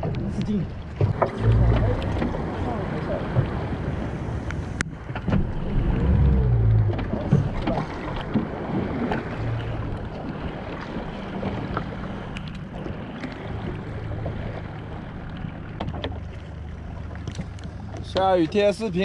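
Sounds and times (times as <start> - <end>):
water slapping boat hull: 0.0 - 19.0
low rumble: 1.0 - 18.0.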